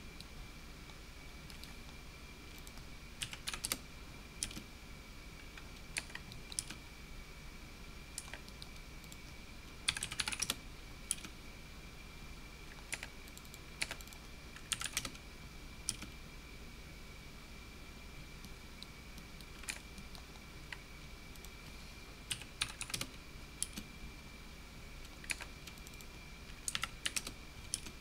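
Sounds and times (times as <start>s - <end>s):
faint high whine: 0.0s - 28.0s
computer keyboard typing: 1.5s - 1.8s, 2.5s - 3.8s, 4.4s - 4.6s, 5.9s - 6.8s, 8.2s - 9.2s, 9.8s - 11.3s, 12.7s - 15.2s, 15.9s - 16.1s, 19.2s - 21.5s, 22.3s - 23.8s, 25.1s - 28.0s.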